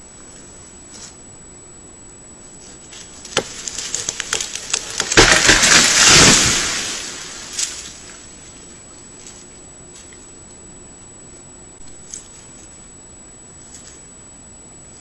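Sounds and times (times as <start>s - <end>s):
tree crashing through brush: 3.0s - 8.2s
wood cracking and snapping: 3.2s - 8.1s.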